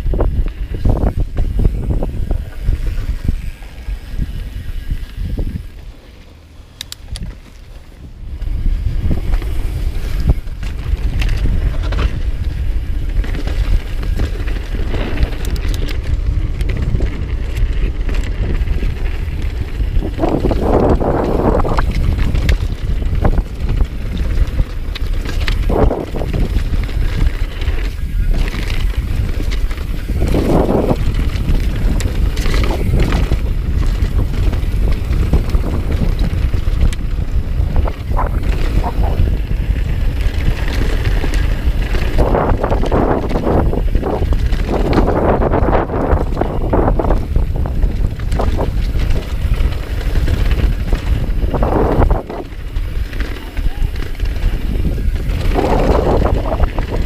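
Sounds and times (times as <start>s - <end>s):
bike rattling: 0.0s - 57.0s
wind buffeting microphone: 0.0s - 57.0s.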